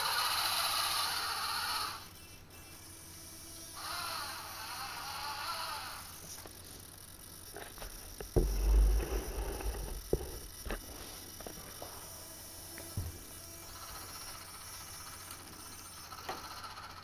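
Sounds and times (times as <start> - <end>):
rc truck motor whirring: 0.0 - 17.0
knocks and clicks: 8.2 - 10.9
loud low thump and rumble: 8.2 - 10.9.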